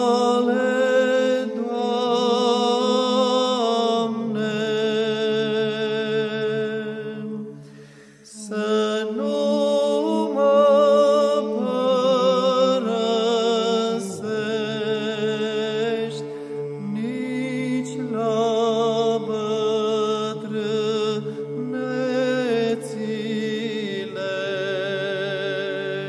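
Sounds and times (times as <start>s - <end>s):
chanted singing with vibrato: 0.0s - 26.0s.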